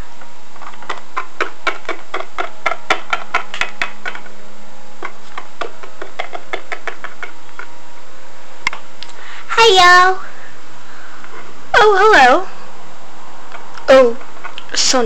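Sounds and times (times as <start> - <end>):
plastic figurines tapping on wood: 0.8 - 4.3, 5.0 - 7.4.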